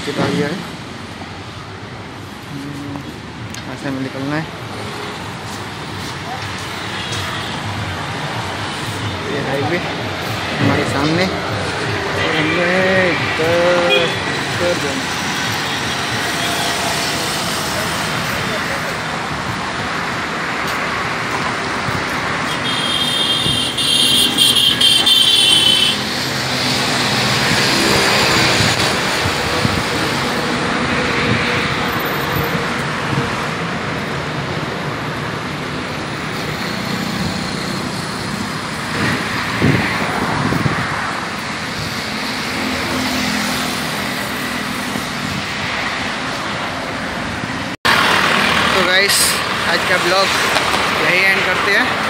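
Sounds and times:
road traffic noise: 0:00.0 - 0:52.0
vehicle horn: 0:13.8 - 0:14.3, 0:22.4 - 0:26.0.

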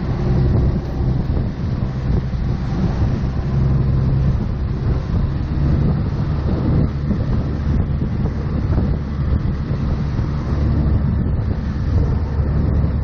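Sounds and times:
motorboat engine running: 0:00.0 - 0:13.0
water churning: 0:00.0 - 0:13.0
wind buffeting microphone: 0:00.0 - 0:13.0.

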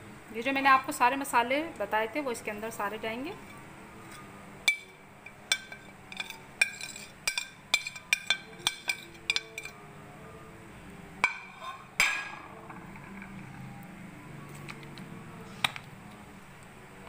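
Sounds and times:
spoon and plate clinking on glass bowl: 0:03.5 - 0:09.8, 0:11.2 - 0:12.4.

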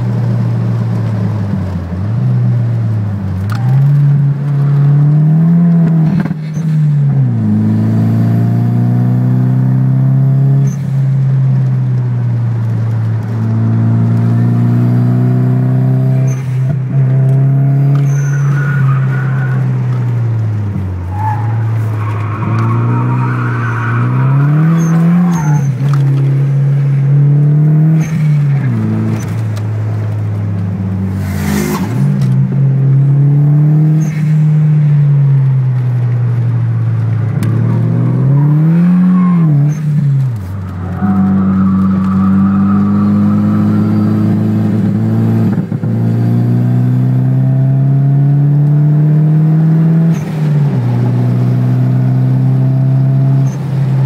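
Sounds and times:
car engine revving in cabin: 0:03.3 - 0:11.0, 0:12.7 - 0:18.6, 0:36.9 - 0:54.0.

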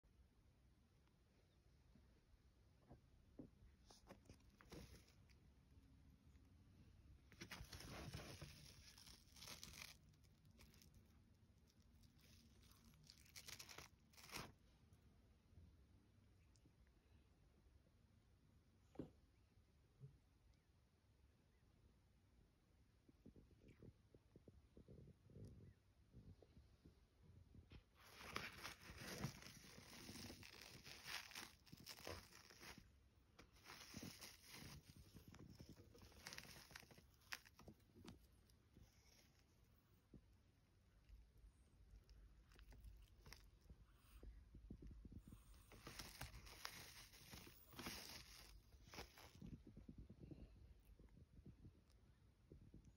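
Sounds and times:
faint fabric rustling: 0:03.4 - 0:14.7, 0:27.6 - 0:40.9, 0:42.5 - 0:52.2.

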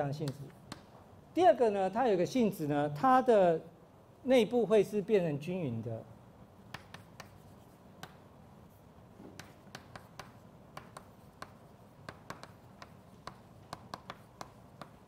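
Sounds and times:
chalk tapping on blackboard: 0:06.7 - 0:08.3, 0:09.2 - 0:15.0.

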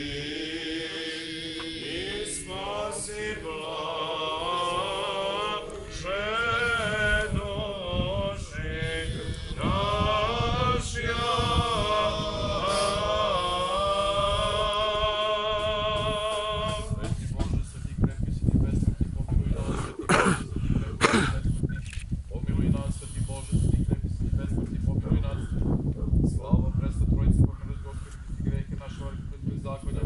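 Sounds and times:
men chanting a hymn: 0:00.0 - 0:17.8.

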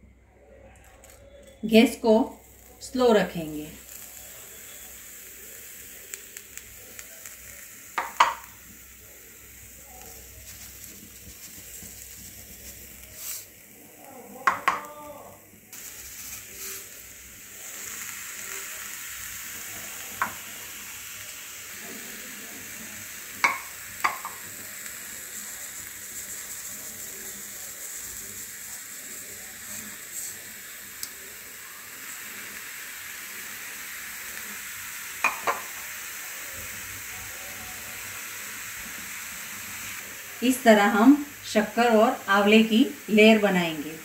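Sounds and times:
sugar hissing in a pan: 0:00.8 - 0:44.0
utensil clicking against pan: 0:23.4 - 0:24.4.

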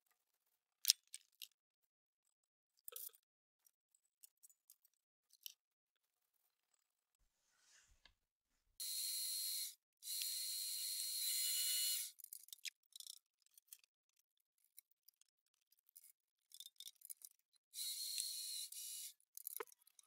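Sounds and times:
high-pitched metal cutting noise: 0:08.8 - 0:12.1.

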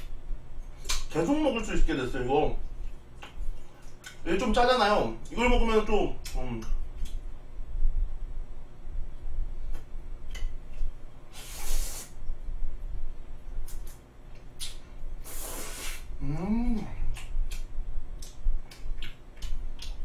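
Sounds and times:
man slurping noodles: 0:11.4 - 0:12.1, 0:15.2 - 0:16.1
man humming: 0:16.2 - 0:17.3
wet chewing: 0:17.0 - 0:20.0.

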